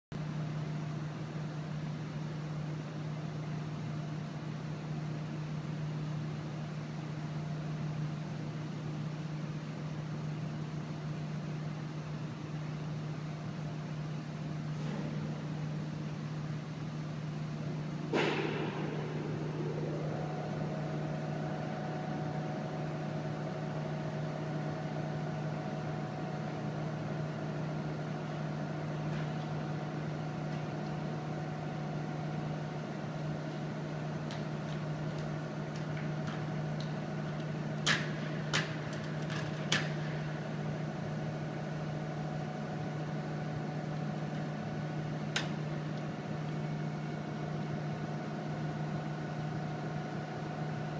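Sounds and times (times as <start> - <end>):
wind tunnel machinery hum: 0.2 - 50.9
rising whine: 18.2 - 27.5.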